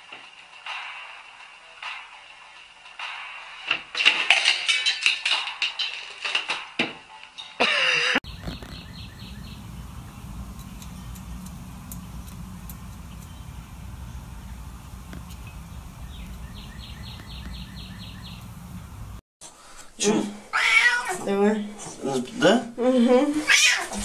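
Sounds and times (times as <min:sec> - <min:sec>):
bird chirping: 0:08.2 - 0:19.2
steady low rumble: 0:08.3 - 0:19.2.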